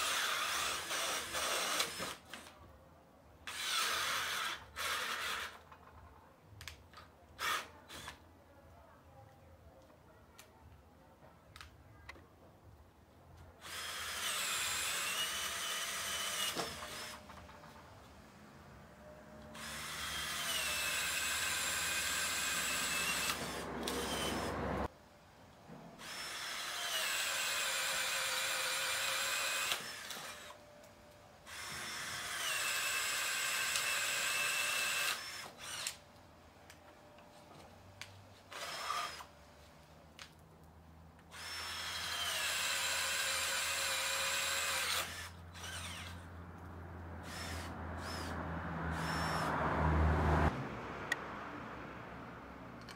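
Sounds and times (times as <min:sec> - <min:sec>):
cordless drill boring wood: 0:00.0 - 0:02.5, 0:03.5 - 0:05.6, 0:13.6 - 0:17.4, 0:19.6 - 0:24.7, 0:26.0 - 0:30.6, 0:31.5 - 0:36.0, 0:38.5 - 0:39.3, 0:41.3 - 0:46.2, 0:47.2 - 0:49.5.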